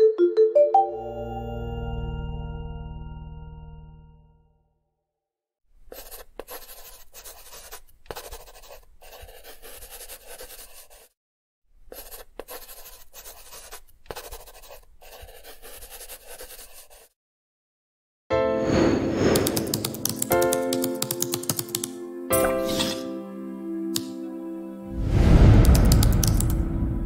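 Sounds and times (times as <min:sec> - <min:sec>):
marker pen scratching: 0:05.9 - 0:11.2, 0:11.8 - 0:17.2, 0:19.3 - 0:23.0, 0:25.7 - 0:26.6.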